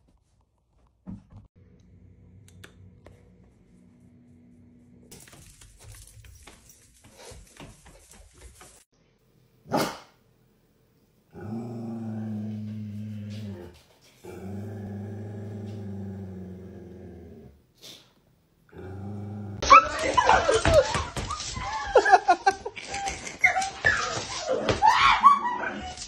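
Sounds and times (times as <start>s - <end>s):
dog growling: 11.3s - 17.6s, 18.7s - 19.6s
high sliding yelps and cries: 23.4s - 26.0s.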